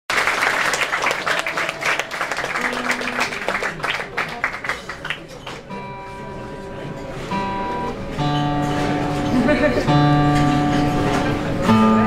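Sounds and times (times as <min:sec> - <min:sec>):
audience applause: 0:00.1 - 0:05.7.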